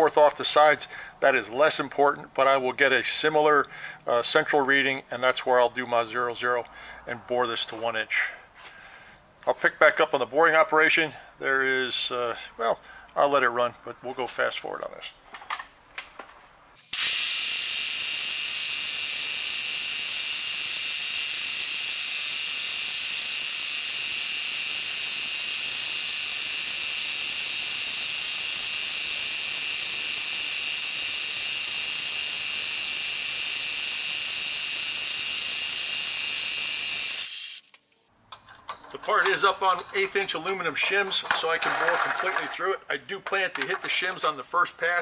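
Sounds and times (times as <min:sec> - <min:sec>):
milling machine hiss and whine: 0:17.0 - 0:37.5.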